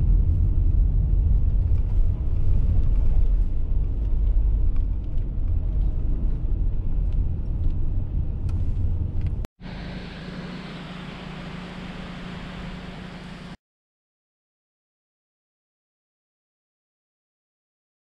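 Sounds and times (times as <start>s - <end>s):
car road noise rumble: 0.0s - 13.6s.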